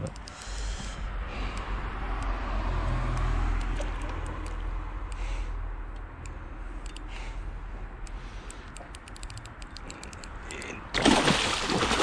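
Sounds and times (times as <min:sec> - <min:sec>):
fish splashing in water: 0:11.0 - 0:12.0.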